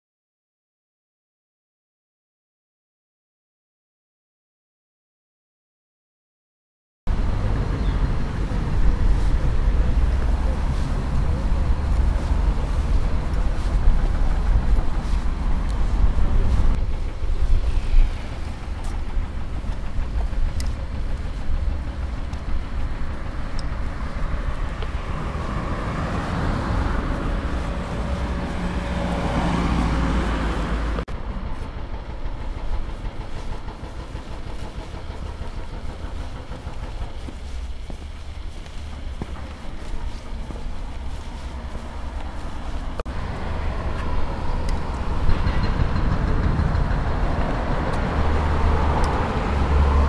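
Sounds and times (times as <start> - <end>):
low rumble: 7.1 - 50.0
car driving past: 20.8 - 31.5, 37.2 - 50.0.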